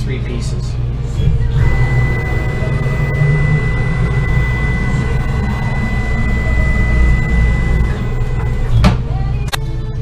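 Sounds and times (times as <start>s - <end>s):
low rumble: 1.3s - 8.8s
router spindle whine: 1.4s - 8.8s.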